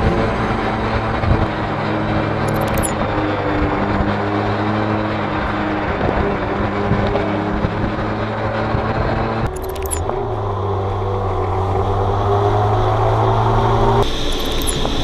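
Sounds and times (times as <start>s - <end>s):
short burst of clicks: 9.5s - 10.0s, 14.3s - 14.9s.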